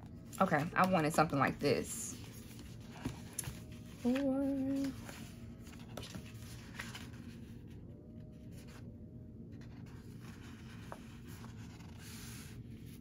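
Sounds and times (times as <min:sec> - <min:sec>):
low steady hum: 0:00.0 - 0:13.0
paper pages rustling: 0:00.4 - 0:08.9, 0:09.6 - 0:13.0.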